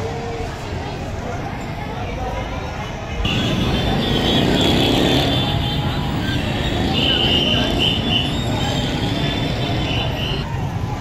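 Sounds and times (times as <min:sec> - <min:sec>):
traffic whistle blasts: 0:03.3 - 0:10.4.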